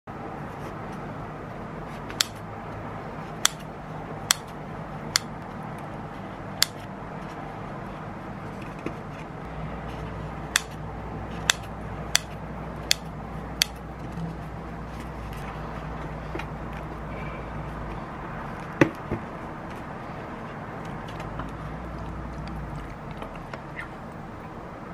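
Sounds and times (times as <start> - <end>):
scissors blades clicking: 2.1 - 2.4, 3.4 - 3.7, 4.3 - 4.5, 5.1 - 5.3, 6.6 - 6.9, 10.6 - 10.8, 11.4 - 13.8.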